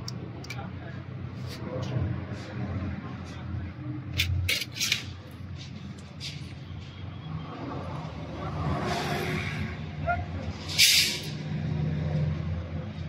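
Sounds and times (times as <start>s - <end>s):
metal parts clinking: 4.2s - 5.1s
hiss: 10.7s - 11.4s.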